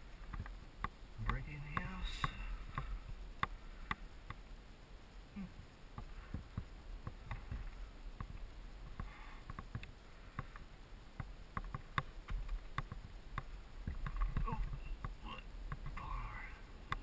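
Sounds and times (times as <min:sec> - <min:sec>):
boots and gear clicking: 0:05.4 - 0:17.0.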